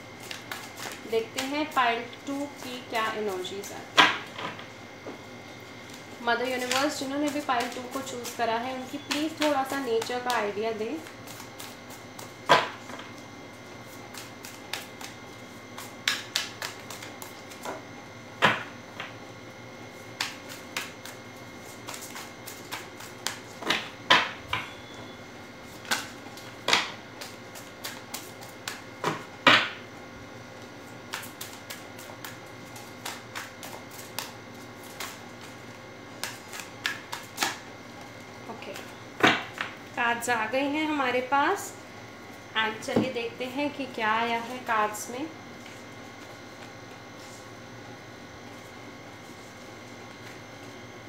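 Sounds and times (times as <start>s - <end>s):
cards being shuffled: 0.2s - 1.9s, 5.8s - 12.4s.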